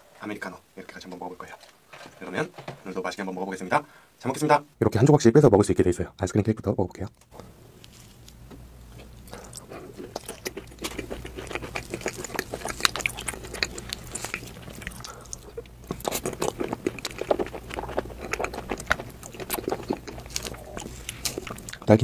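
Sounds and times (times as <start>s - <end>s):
chewing with wet clicks: 9.3s - 21.9s.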